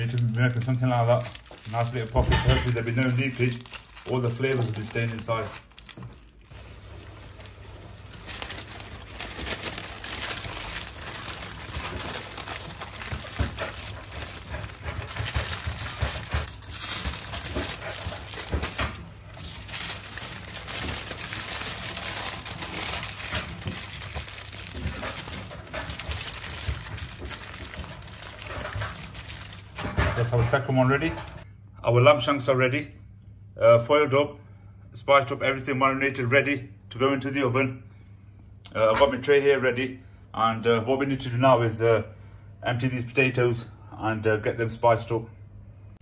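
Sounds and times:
foil and paper crinkling: 0.0 - 31.4.

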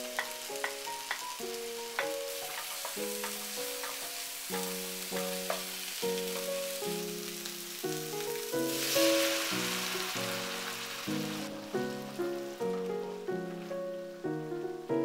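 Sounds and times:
food sizzling in a frying pan: 0.0 - 14.3
background music: 0.0 - 15.0
water poured into hot pan: 7.7 - 12.8.

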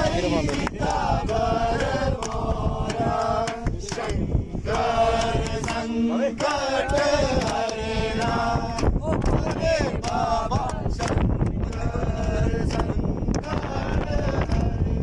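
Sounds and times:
group singing a devotional chant: 0.0 - 15.0
hand claps: 0.3 - 14.8.

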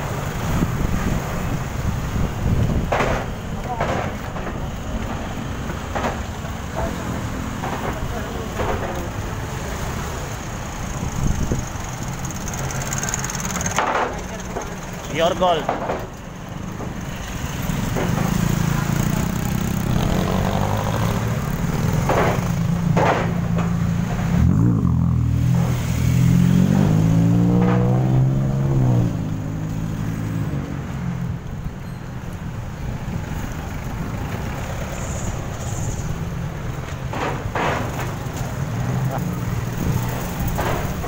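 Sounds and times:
car engines running: 0.0 - 41.0
motorcycle engine: 11.0 - 14.9, 17.0 - 30.4
engine pulling away: 17.3 - 22.8, 24.1 - 31.1.

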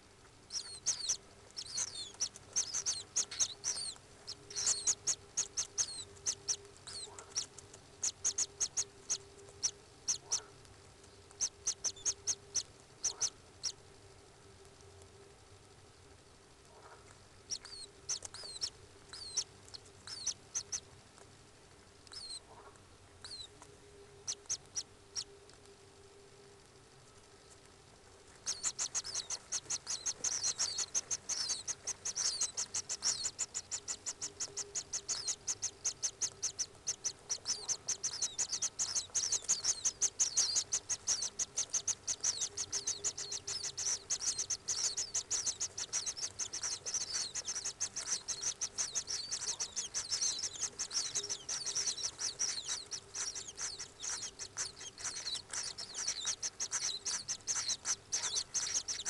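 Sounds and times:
kingfisher piping calls: 0.5 - 9.2, 28.4 - 59.0.

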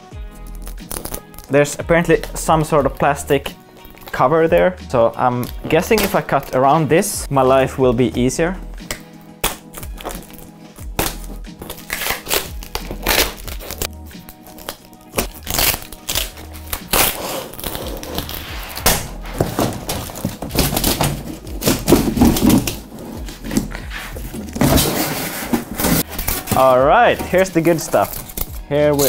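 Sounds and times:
background music with low beat: 0.0 - 29.0
cardboard box knocks and rustles: 19.3 - 26.0.

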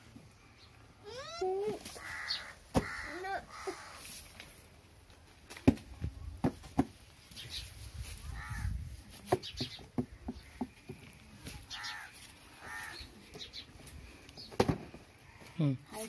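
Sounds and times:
cardboard boxes knocking: 5.7 - 7.0.

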